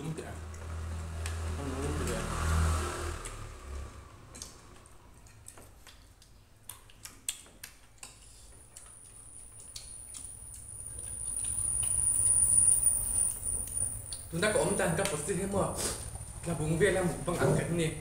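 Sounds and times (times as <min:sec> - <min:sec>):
people eating by hand: 0:04.3 - 0:18.0
high-pitched whine: 0:10.6 - 0:15.0.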